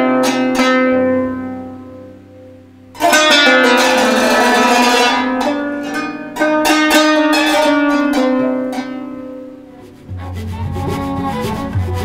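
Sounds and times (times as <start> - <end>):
plucked qanun strings: 0.0 - 12.0.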